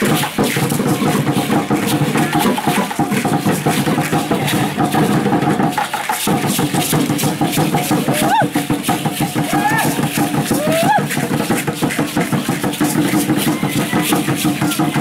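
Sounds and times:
wooden drums beating: 0.0s - 15.0s.

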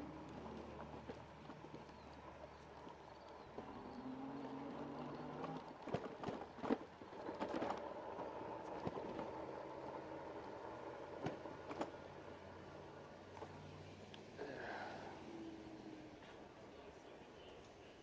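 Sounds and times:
bike rolling over grass and stone: 0.0s - 12.5s
bike clattering over bumps: 4.5s - 12.1s.

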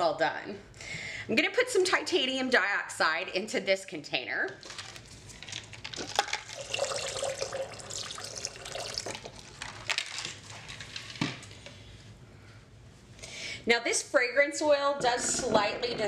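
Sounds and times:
liquid pouring and splashing: 4.6s - 10.5s.

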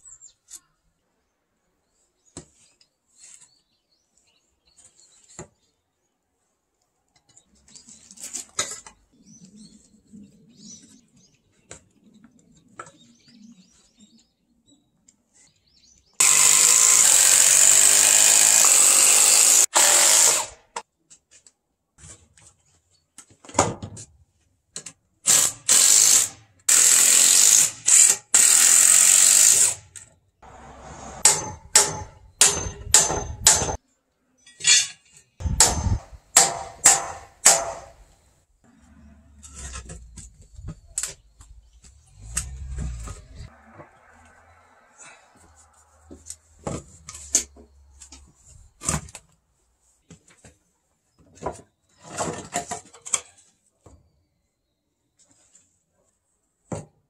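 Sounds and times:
cordless drill on wood: 16.2s - 20.8s, 25.3s - 30.0s.

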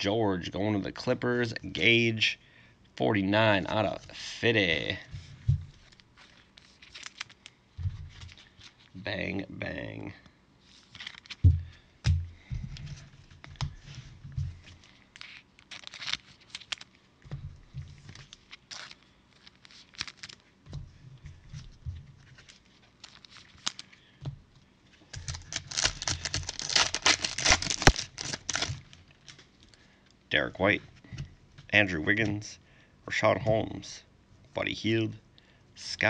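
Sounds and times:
plastic wrapper tearing and crinkling: 5.8s - 9.0s, 10.7s - 11.4s, 14.8s - 17.0s, 18.0s - 20.5s, 22.3s - 24.0s, 25.1s - 29.7s.

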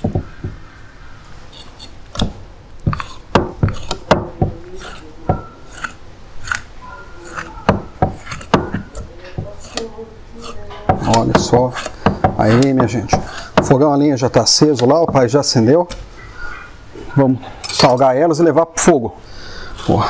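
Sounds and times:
knife cutting through fish: 2.9s - 5.1s, 5.7s - 8.9s, 9.5s - 13.6s.

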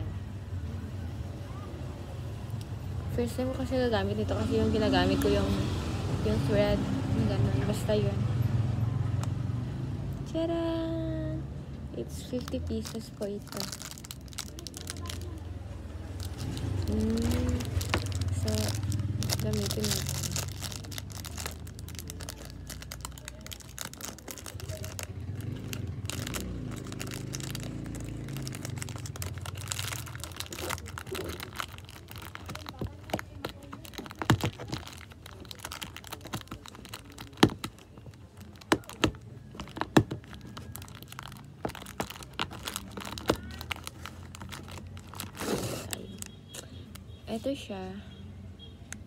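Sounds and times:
plastic wrapper crinkling: 12.1s - 47.0s.

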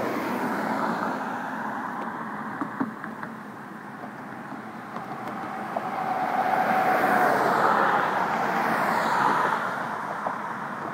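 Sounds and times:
car driving past: 5.0s - 10.6s.

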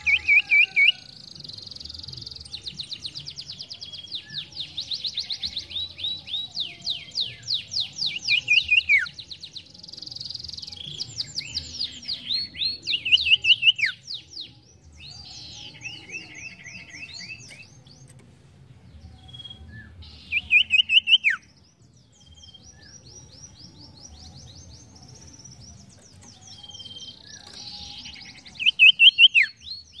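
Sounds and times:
songbird trilling: 19.2s - 21.4s, 26.3s - 30.0s.

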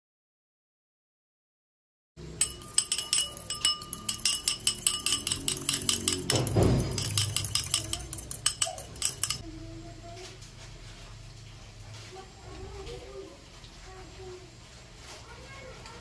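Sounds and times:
fork scraping a bowl: 2.4s - 9.4s
metal fork clinking in a bowl: 2.4s - 9.4s.

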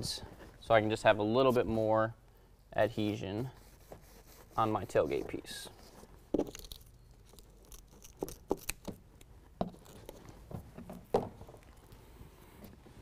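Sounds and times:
hands tapping and rustling tape: 3.8s - 12.8s.

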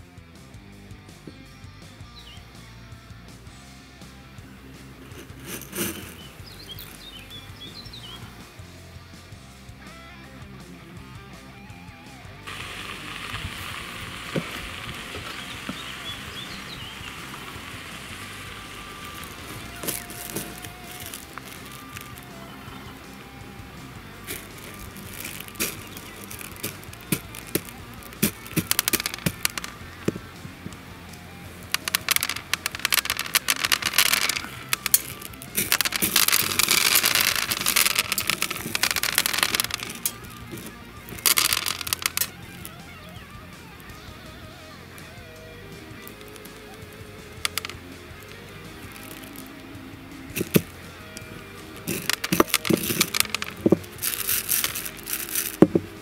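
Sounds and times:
faint background music: 0.0s - 56.0s
plastic sizzling on hot metal: 12.5s - 42.8s
faint bird chirps: 14.8s - 17.6s.

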